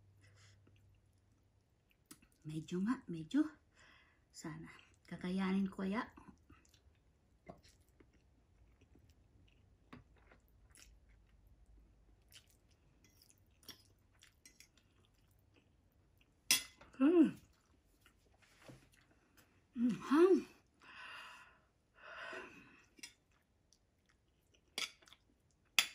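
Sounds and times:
chewing noodles: 6.2 - 16.4, 22.8 - 25.8.

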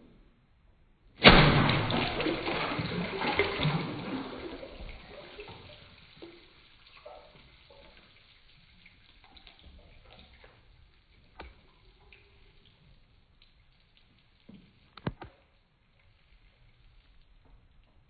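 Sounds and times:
object splashing into water: 1.2 - 8.0
churning water: 1.2 - 10.8
faint water drips: 1.2 - 18.0.

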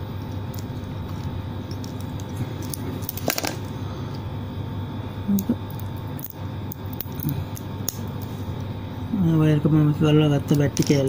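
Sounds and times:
steady background hum: 0.0 - 11.0.

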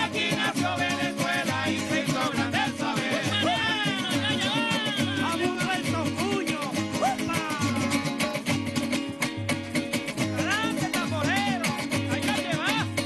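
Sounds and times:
person singing: 0.0 - 8.2
small guitars strummed fast: 0.0 - 13.0.

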